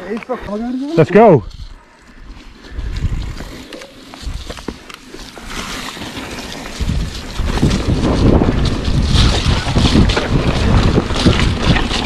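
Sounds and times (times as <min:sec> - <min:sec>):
bike tyres rumbling on dirt: 0:00.5 - 0:12.0
bike rattling over bumps: 0:02.2 - 0:12.0
wind buffeting microphone: 0:02.7 - 0:03.6, 0:06.6 - 0:12.0.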